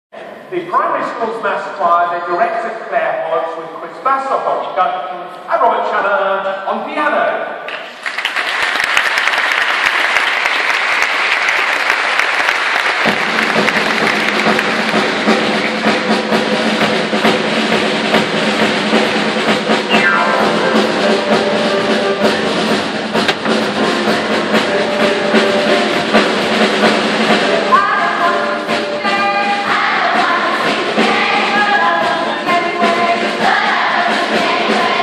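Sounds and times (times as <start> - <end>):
audience applauding: 7.7 - 16.0
drums: 8.1 - 35.0
orchestra playing: 13.0 - 35.0.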